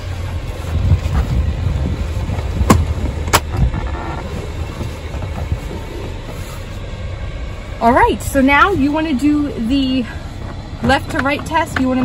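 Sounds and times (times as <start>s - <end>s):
low rumble: 0.0s - 12.0s
car seat mechanism clicking shut: 2.5s - 4.3s.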